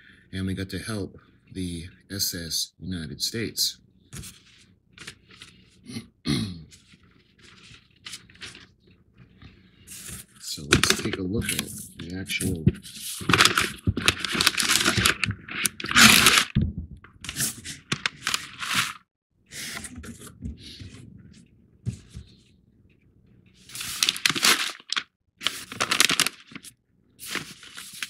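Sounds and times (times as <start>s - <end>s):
paper bag crinkling: 6.8s - 8.9s, 12.4s - 16.6s, 17.2s - 19.0s, 23.6s - 28.0s.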